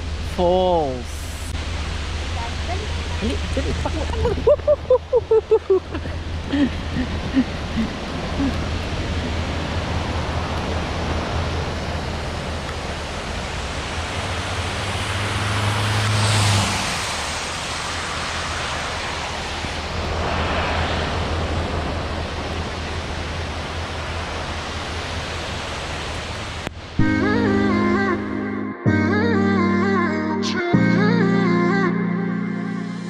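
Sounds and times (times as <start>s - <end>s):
low hum: 0.0s - 25.3s
waterfall and river rushing: 0.0s - 28.5s.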